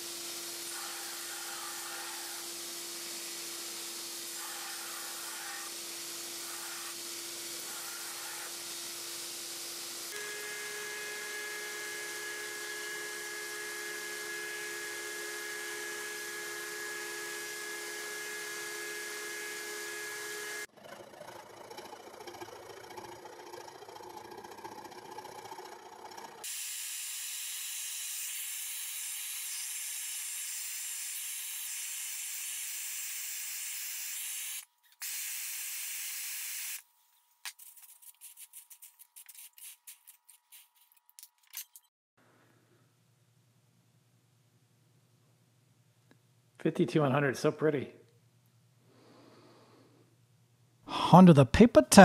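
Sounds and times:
gas torch flame hissing: 0:00.0 - 0:10.2
belt grinder whining: 0:00.0 - 0:36.8
file scraping steel: 0:00.6 - 0:03.4, 0:04.0 - 0:09.1.

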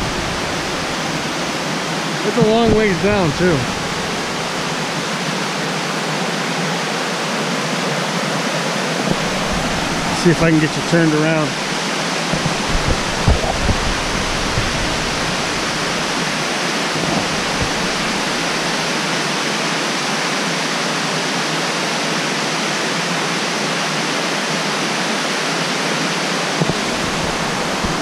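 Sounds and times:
waterfall rushing: 0:00.0 - 0:28.0
low bumps: 0:02.3 - 0:05.0, 0:09.0 - 0:18.7, 0:26.6 - 0:28.0.

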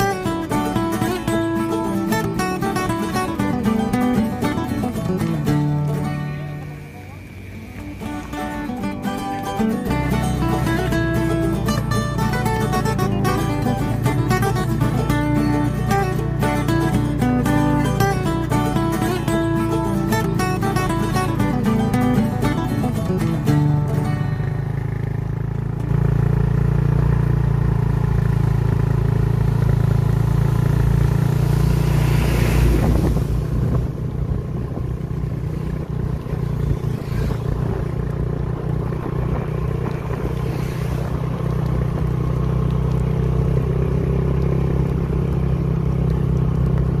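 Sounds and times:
motorcycle engine running: 0:00.0 - 0:47.0
loud rushing noise: 0:31.3 - 0:34.2
wind rushing on microphone: 0:31.7 - 0:42.1.

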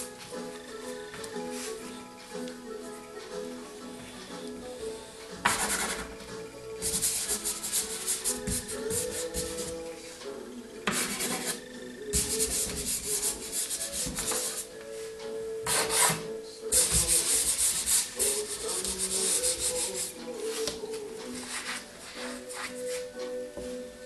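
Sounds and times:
faint background music: 0:00.0 - 0:24.0
hand rubbing pastel on paper: 0:05.5 - 0:06.1, 0:06.8 - 0:09.8, 0:10.9 - 0:11.6, 0:12.2 - 0:14.7, 0:16.7 - 0:20.6, 0:21.4 - 0:23.0.

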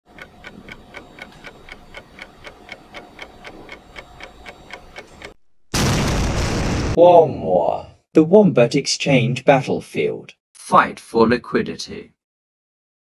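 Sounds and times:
clock-like ticking: 0:00.1 - 0:05.4.

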